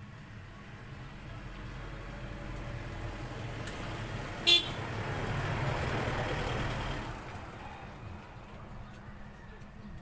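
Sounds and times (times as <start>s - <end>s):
vehicle passing: 0.0s - 10.0s
vehicle horn toot: 4.4s - 4.8s.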